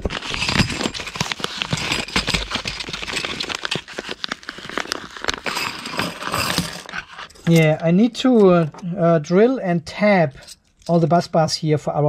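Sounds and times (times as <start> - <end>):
padded envelopes crinkling: 0.0 - 7.6.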